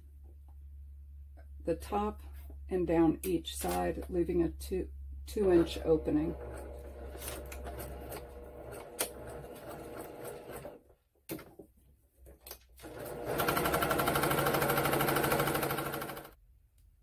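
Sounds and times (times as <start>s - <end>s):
sewing machine stitching: 5.6s - 10.8s, 12.8s - 16.4s.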